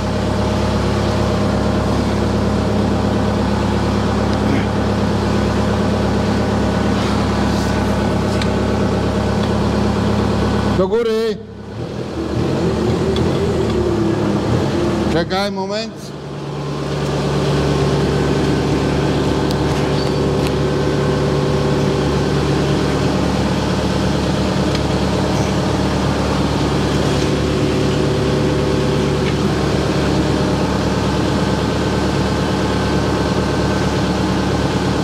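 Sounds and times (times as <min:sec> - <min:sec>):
forklift engine running: 0:00.0 - 0:35.0.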